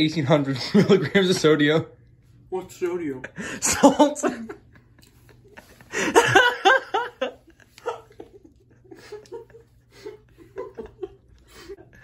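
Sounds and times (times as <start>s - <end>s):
person laughing: 3.4s - 12.0s.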